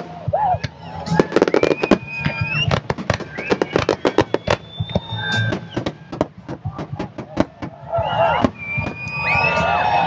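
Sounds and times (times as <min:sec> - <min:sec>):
fireworks bangs and crackles: 0:00.0 - 0:10.0
high whistling tones: 0:00.7 - 0:06.1, 0:07.9 - 0:10.0.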